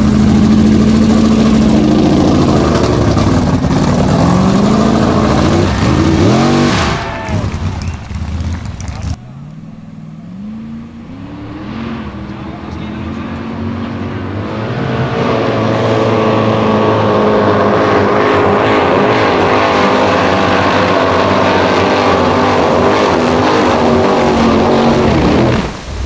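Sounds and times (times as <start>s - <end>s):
buggy engine at full throttle: 0.0s - 25.8s.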